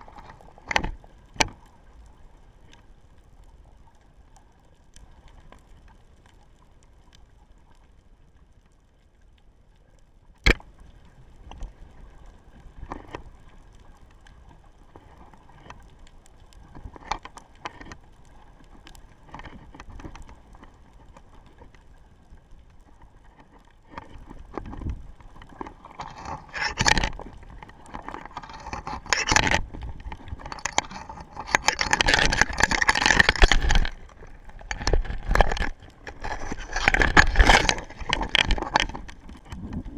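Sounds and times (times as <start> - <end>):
underwater clicks and knocks: 0.0 - 1.7, 10.4 - 39.9
camera scraping on sand: 25.9 - 27.3, 27.9 - 39.7.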